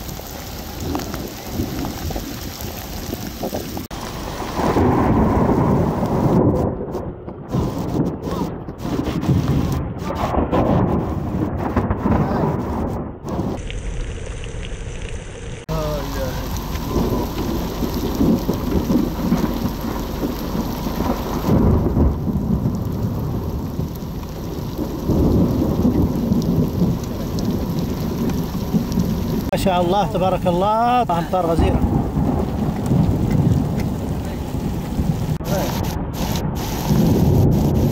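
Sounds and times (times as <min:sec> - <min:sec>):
low rumble: 0:00.0 - 0:29.6, 0:31.6 - 0:37.9
heavy rain on asphalt: 0:00.0 - 0:37.9.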